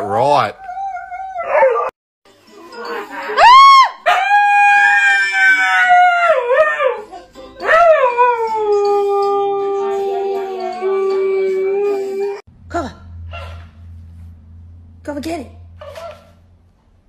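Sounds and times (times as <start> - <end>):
husky howling: 0.6 - 1.9, 3.2 - 12.4.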